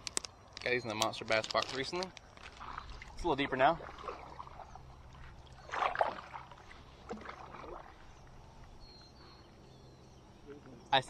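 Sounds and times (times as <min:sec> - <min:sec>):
paddle strokes splashing water: 0:02.3 - 0:09.2.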